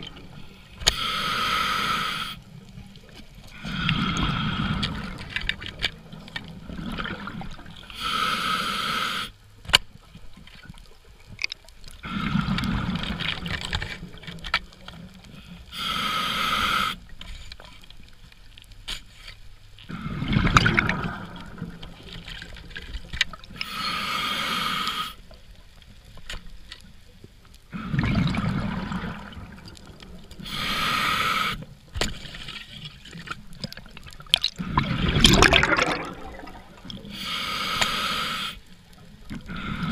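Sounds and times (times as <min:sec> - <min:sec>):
regulator hissing inhale: 0:00.5 - 0:02.5, 0:07.9 - 0:09.4, 0:15.3 - 0:17.1, 0:23.6 - 0:25.3, 0:30.4 - 0:31.7, 0:36.9 - 0:38.8
bubbling exhale: 0:27.7 - 0:29.7, 0:34.5 - 0:38.6, 0:39.4 - 0:39.9.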